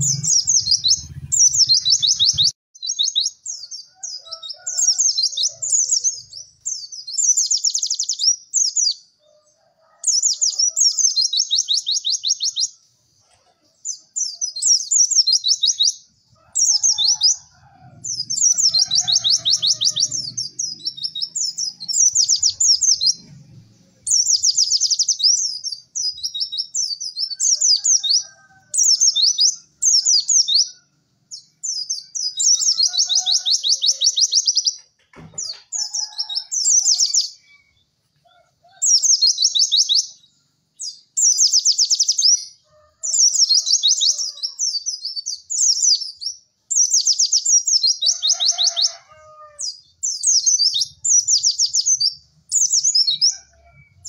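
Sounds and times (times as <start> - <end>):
bird chattering trills: 0.0 - 8.1, 16.6 - 23.2.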